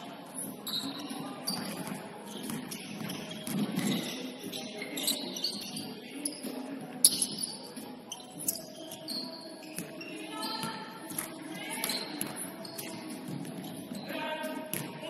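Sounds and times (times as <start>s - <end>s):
gym hall background noise: 0.0s - 15.0s
shoe squeaks: 0.4s - 14.7s
ball bouncing on hardwood court: 1.6s - 4.1s, 14.7s - 15.0s.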